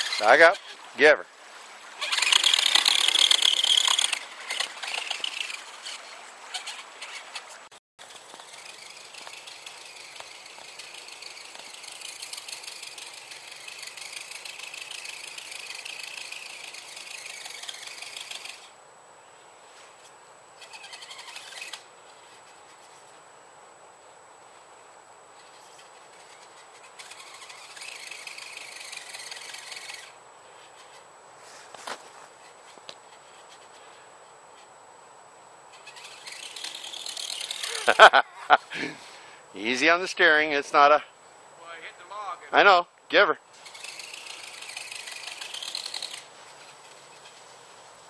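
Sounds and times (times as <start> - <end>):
toy truck motor and gears whining: 0.0 - 1.2, 2.0 - 18.8, 20.6 - 23.1, 25.4 - 31.0, 35.7 - 38.2, 43.5 - 47.4.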